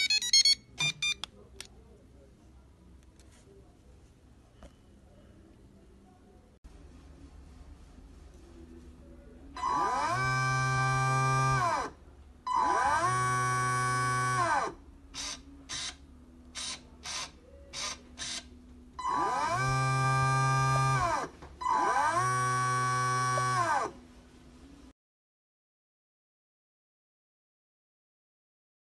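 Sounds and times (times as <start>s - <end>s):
steering servo buzzing: 19.0s - 24.0s.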